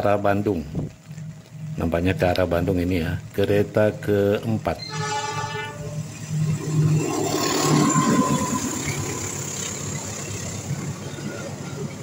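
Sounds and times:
locomotive engine hum: 0.0s - 12.0s
train wheels on rails: 3.9s - 12.0s.

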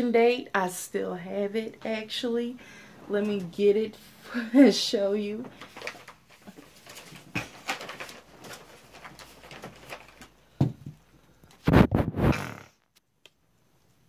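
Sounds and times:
rummaging clicks and rustles: 5.4s - 11.6s.

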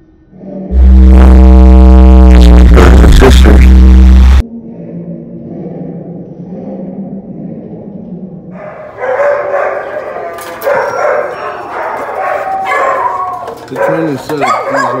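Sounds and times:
dogs barking: 8.6s - 15.0s.

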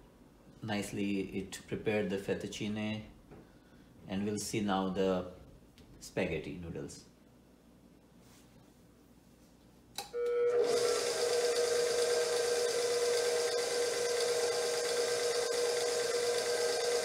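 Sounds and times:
mixer motor humming: 10.5s - 17.0s.

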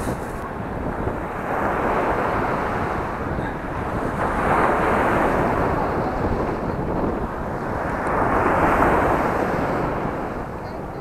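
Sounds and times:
waves breaking on pebble beach: 0.0s - 0.4s
wind buffeting microphone: 0.0s - 11.0s.

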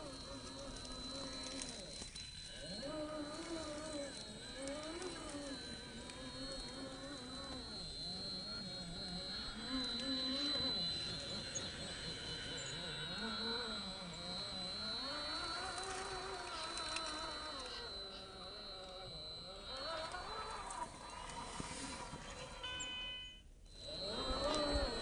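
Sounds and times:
electric motor whining: 0.0s - 23.0s, 23.7s - 25.0s
steady high-pitched whine: 0.0s - 25.0s.

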